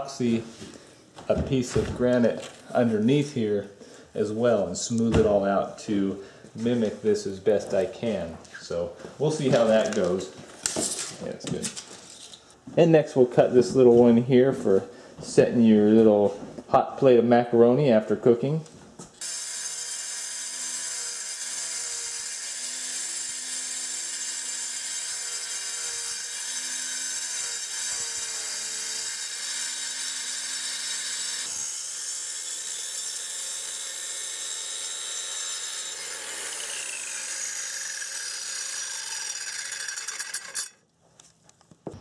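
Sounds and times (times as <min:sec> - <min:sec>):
circular saw grinding stone: 0:19.2 - 0:40.8.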